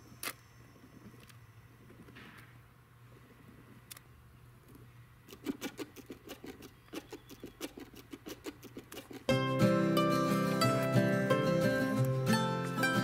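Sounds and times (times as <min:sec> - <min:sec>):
rabbit scratching at soil: 0:05.3 - 0:09.3.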